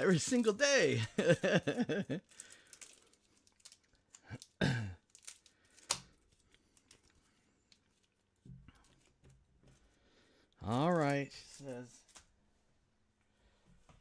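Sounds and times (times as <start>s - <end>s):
man speaking: 0.0s - 1.5s, 10.6s - 12.0s
crinkling and rustling handling: 1.8s - 14.0s.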